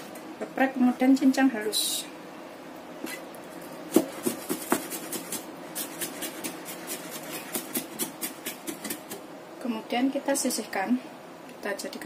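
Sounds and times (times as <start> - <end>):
cleaver chopping on plastic board: 3.9 - 5.4.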